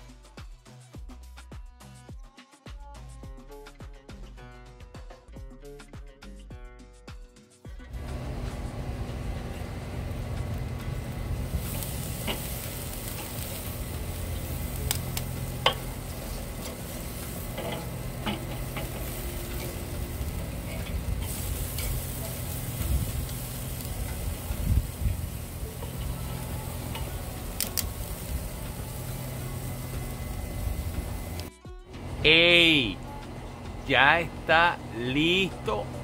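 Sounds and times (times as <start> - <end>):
fat and coals popping: 7.9 - 32.2
steady low hum: 7.9 - 36.0
steaks sizzling on a grill: 8.0 - 31.5.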